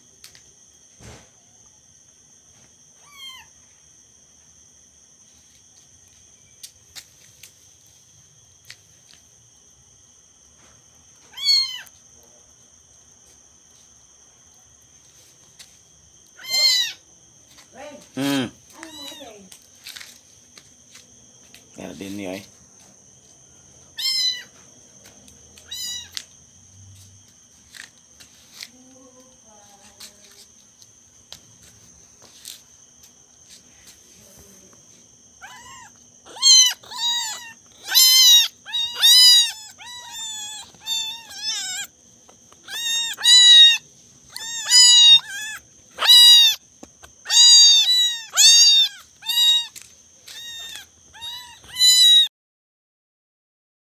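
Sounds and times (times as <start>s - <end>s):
kitten meowing: 3.0s - 3.5s, 11.3s - 11.9s, 16.4s - 17.0s, 18.8s - 19.4s, 24.0s - 24.5s, 25.6s - 26.2s, 35.4s - 41.9s, 42.6s - 46.6s, 47.2s - 52.3s.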